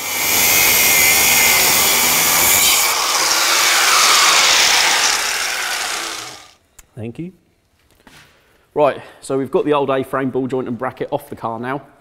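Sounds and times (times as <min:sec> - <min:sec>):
angle grinder cutting metal: 0:00.0 - 0:06.6.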